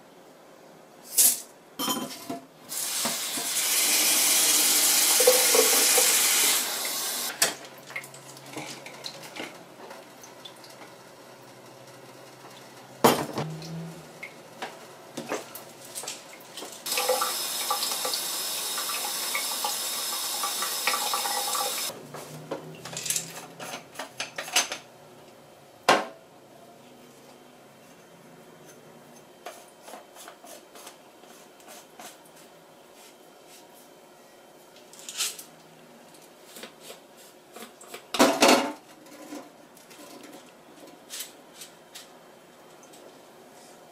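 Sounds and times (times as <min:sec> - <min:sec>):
tap water running: 0:02.7 - 0:09.3, 0:15.2 - 0:21.9.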